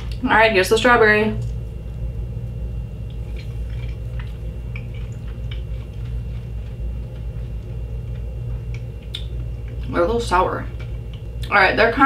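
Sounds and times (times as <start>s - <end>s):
low room hum: 0.0s - 12.0s
chewing candy clicks: 3.7s - 7.3s, 8.2s - 9.8s.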